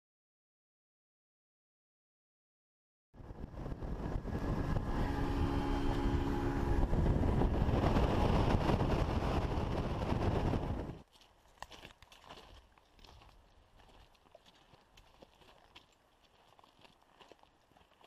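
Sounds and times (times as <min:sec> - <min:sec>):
motorboat engine drone: 0:03.2 - 0:09.8
wind and water noise: 0:03.2 - 0:18.0.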